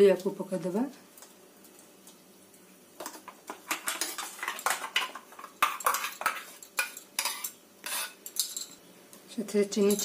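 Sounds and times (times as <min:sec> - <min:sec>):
metal spoon scraping steel jar: 0:05.8 - 0:08.7.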